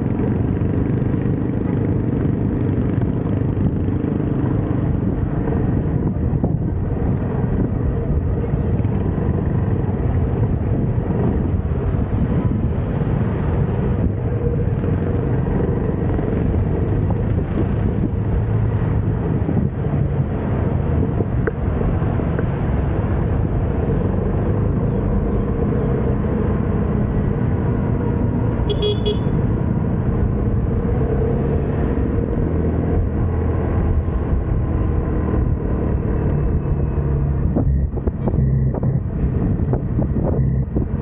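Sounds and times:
wind on the microphone: 0.0 - 28.5, 31.9 - 41.0
motorcycle engine rumble: 0.0 - 41.0
short horn beep: 28.7 - 29.4.

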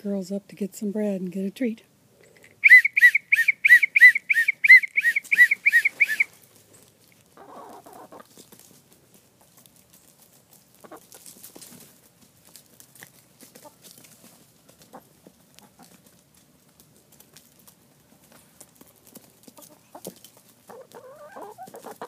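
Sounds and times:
chickens clucking: 2.3 - 22.0
short arching whistle notes: 2.6 - 6.3
chickens rustling: 2.6 - 22.0.

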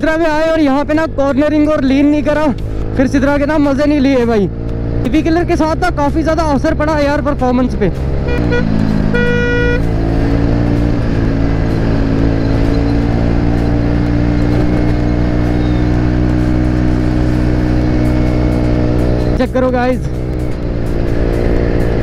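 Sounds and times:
scooter engine cruising: 0.0 - 22.0
horn beeping: 8.2 - 13.0.

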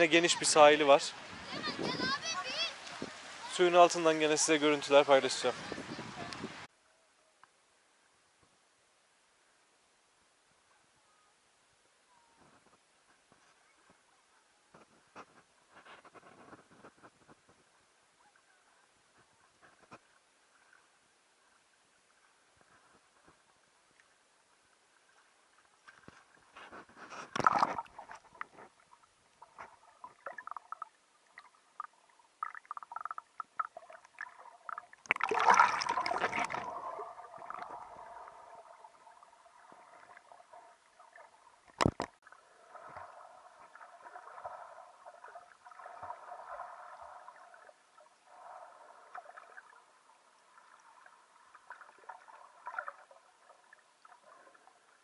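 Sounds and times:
water sloshing and gurgling: 0.0 - 6.7, 19.1 - 55.0
water splashes: 0.0 - 6.7, 14.8 - 55.0.

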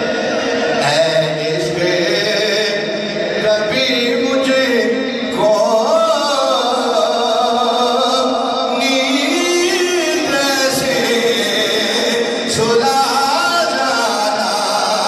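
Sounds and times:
man chanting devotional poem: 0.7 - 15.0.

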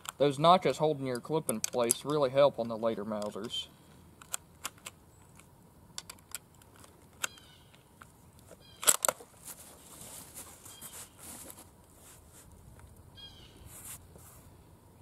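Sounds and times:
cartridges clicking into magazine: 8.8 - 9.2
rifle bolt clacking shut: 8.8 - 9.2.

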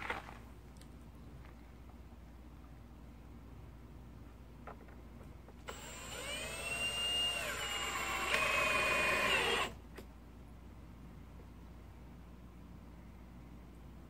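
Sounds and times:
power drill driving screw: 5.6 - 9.8.

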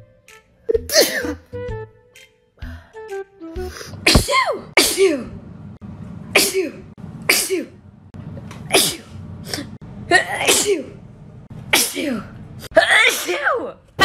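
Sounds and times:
woman sneezing: 0.7 - 1.4, 3.7 - 5.3, 6.4 - 7.8, 8.7 - 11.0, 11.8 - 13.7.

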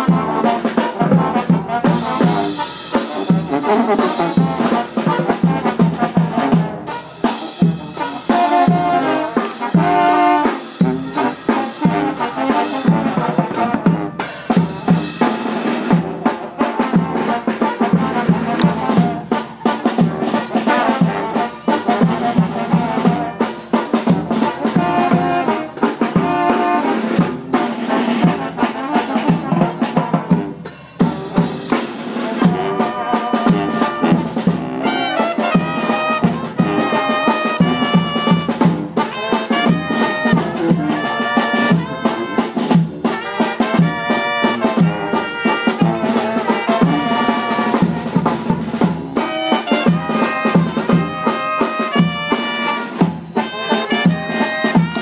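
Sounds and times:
brass band playing: 0.0 - 55.0
drum kit beat: 0.0 - 55.0.

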